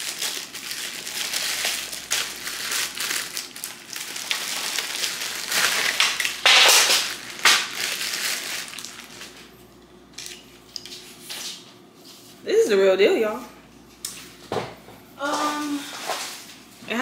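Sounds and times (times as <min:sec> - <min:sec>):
plastic wrapping crinkling: 0:00.0 - 0:11.4.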